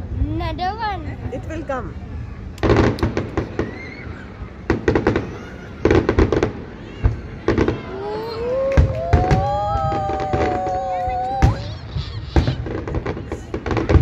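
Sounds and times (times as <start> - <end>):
fireworks bangs and crackles: 2.6 - 14.0
long pitched tone: 7.9 - 11.6.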